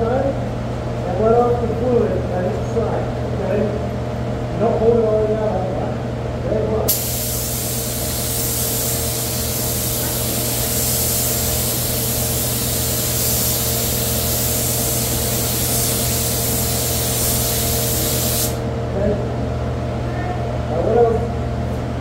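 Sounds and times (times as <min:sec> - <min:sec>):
air spray gun hissing: 0:06.9 - 0:18.6.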